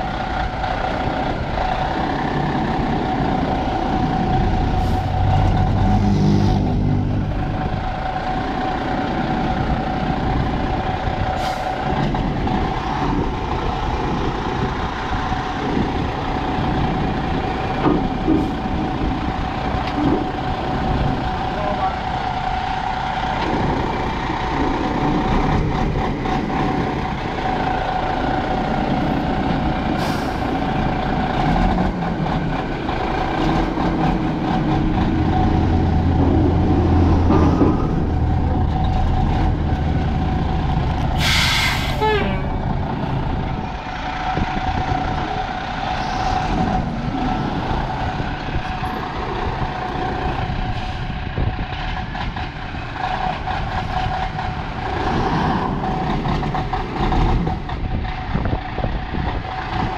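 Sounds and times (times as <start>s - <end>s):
truck diesel engine running: 0.0s - 59.9s
air brake hiss: 11.4s - 11.8s, 30.0s - 30.5s, 41.2s - 42.3s.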